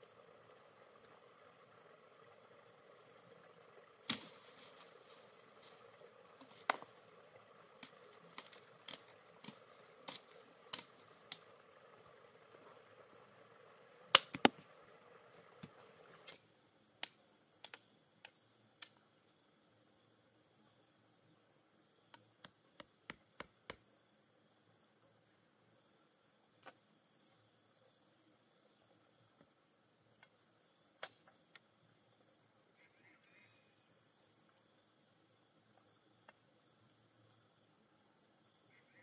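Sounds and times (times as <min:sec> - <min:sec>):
insects buzzing: 0:00.0 - 0:39.0
machete chopping branches: 0:04.0 - 0:04.9, 0:06.4 - 0:06.9, 0:07.8 - 0:11.4, 0:14.1 - 0:14.6.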